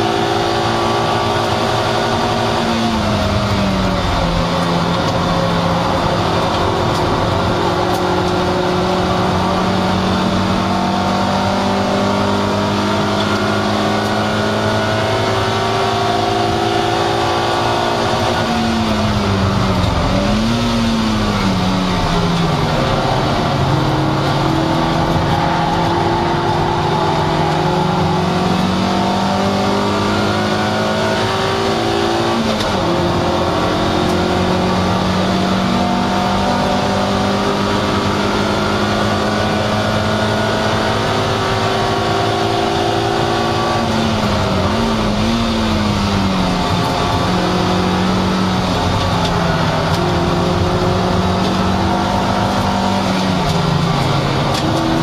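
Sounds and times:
car engine revving high: 0.0 - 55.0
road noise: 0.0 - 55.0.

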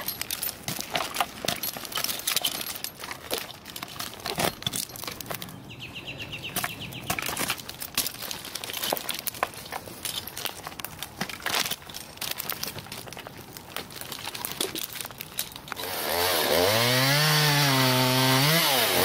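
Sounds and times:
metal carabiners jangling: 0.0 - 5.6, 6.6 - 13.1, 13.9 - 15.8.

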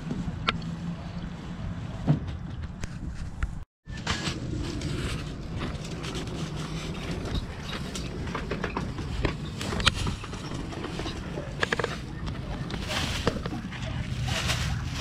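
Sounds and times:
plastic bag rustling: 9.1 - 15.0.

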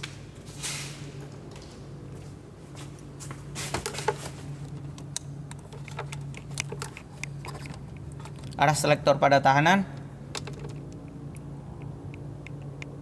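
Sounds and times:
steady low hum: 0.0 - 13.0
multimeter clicks and knocks: 4.9 - 8.6, 10.3 - 13.0.

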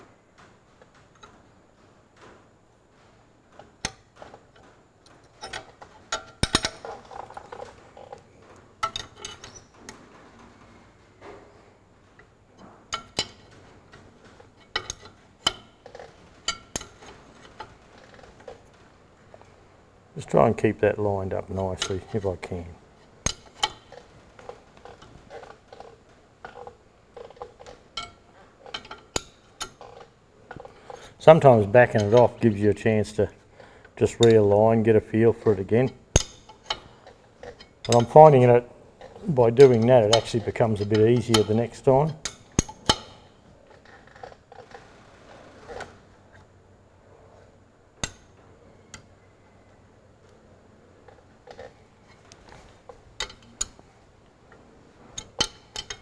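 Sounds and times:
metal handling noises: 0.0 - 56.0
sharp metal clicks: 3.8 - 8.2, 35.4 - 44.7, 48.0 - 49.1.

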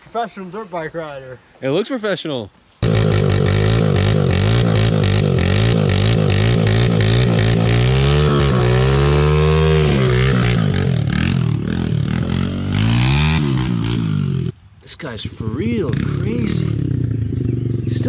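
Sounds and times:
dirt bike engine revving: 2.8 - 14.6, 15.8 - 18.0.

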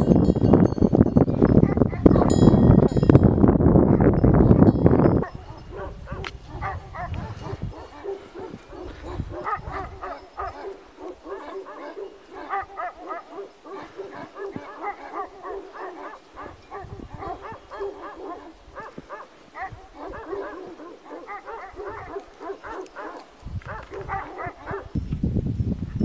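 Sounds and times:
dog yapping: 5.3 - 24.9.

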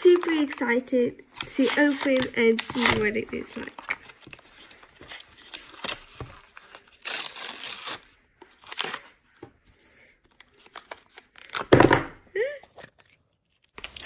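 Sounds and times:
paper tearing and crinkling: 1.4 - 9.3.

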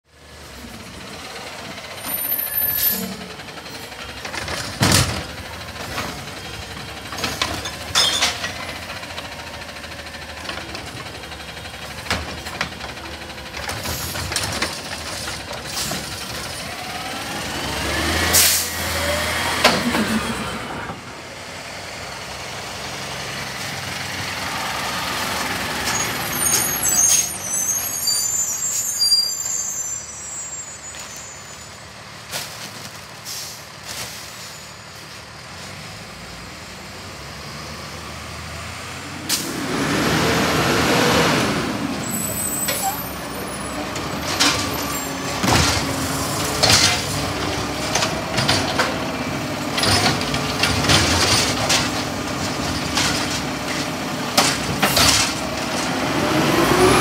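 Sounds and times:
diesel engines revving: 0.1 - 57.0
hydraulic arm dumping cart: 0.3 - 36.0, 38.5 - 57.0
air brake hisses: 18.3 - 18.8, 33.2 - 34.8.

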